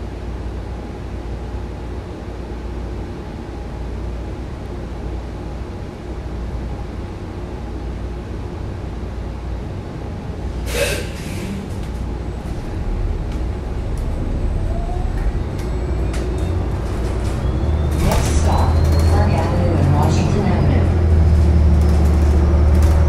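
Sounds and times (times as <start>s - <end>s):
bus rumbling: 0.0s - 23.0s
rising electric motor whine: 12.6s - 17.8s.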